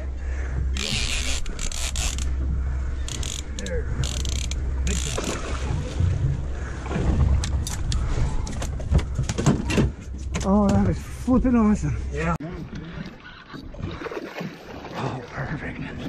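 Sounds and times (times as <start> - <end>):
low hum: 0.0 - 16.0
fishing reel clicking: 0.8 - 2.3, 3.1 - 5.2
fish splashing: 13.0 - 15.1.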